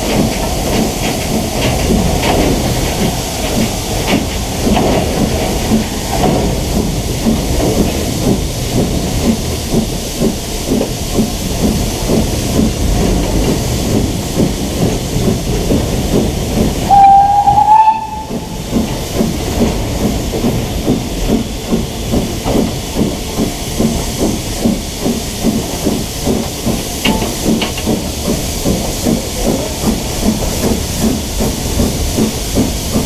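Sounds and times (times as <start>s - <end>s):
steam hissing: 0.0s - 33.0s
steam locomotive exhaust beats: 0.0s - 33.0s
locomotive whistle blast: 16.9s - 18.6s.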